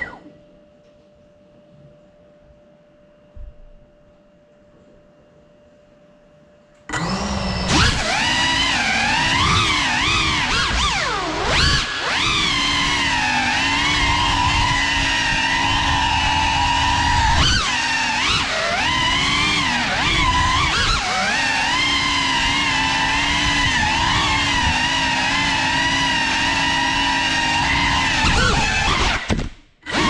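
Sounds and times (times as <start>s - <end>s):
drone propellers whining: 6.9s - 30.0s.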